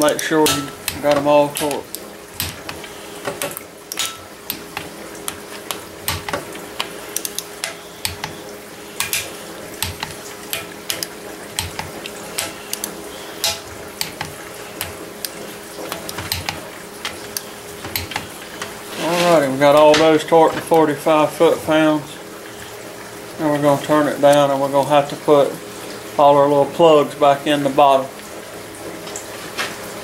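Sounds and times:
torque wrench clicking: 0.0s - 8.4s, 9.0s - 18.7s.

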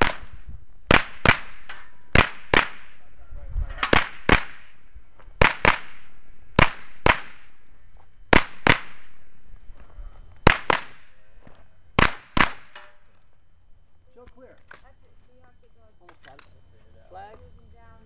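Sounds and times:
gunshots in quick pairs: 0.0s - 3.0s, 3.8s - 4.8s, 5.4s - 7.6s, 8.3s - 9.2s, 10.4s - 11.1s, 12.0s - 12.8s.

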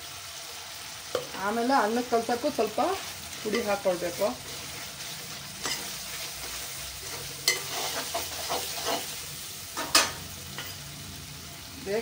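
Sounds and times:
gravy sizzling in a pan: 0.0s - 12.0s
metal spoon knocking and scraping pan: 5.6s - 9.2s.

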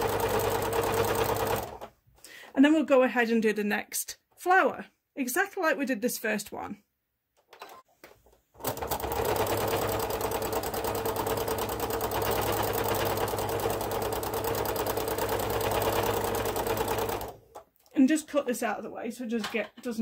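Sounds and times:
sewing machine stitching: 0.0s - 1.9s, 8.6s - 17.6s.

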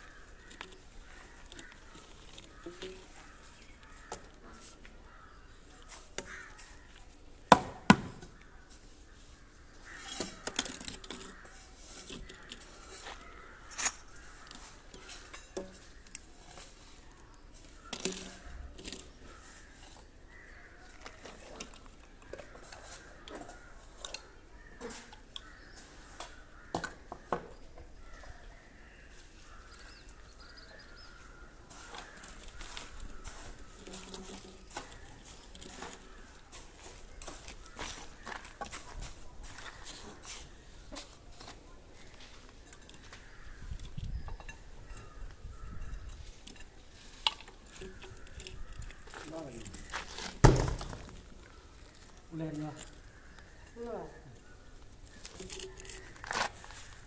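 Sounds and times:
plastic pipes clicking and knocking: 46.0s - 52.0s.

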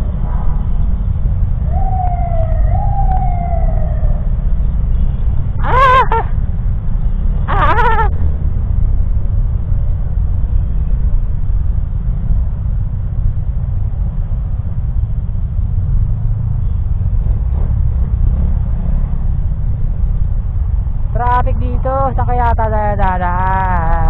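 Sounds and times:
motorcycle in slow traffic: 0.0s - 5.6s, 8.1s - 21.1s.

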